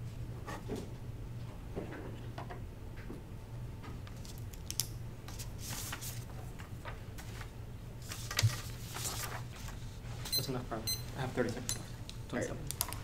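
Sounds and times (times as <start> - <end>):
paper rustling: 5.3 - 10.0.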